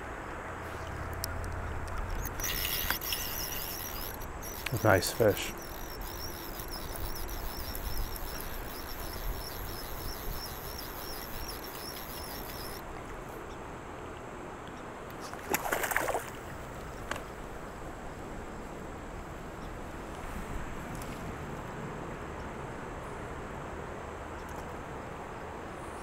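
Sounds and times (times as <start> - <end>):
insects trilling: 1.9 - 12.8.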